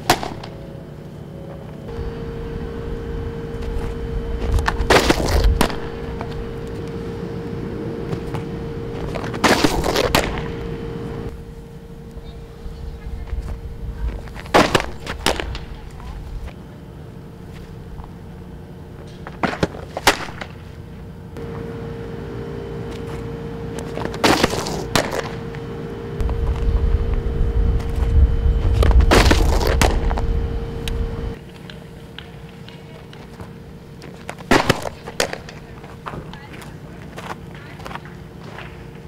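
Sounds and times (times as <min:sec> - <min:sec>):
steady low rumble: 0:00.1 - 0:19.5, 0:20.1 - 0:31.4.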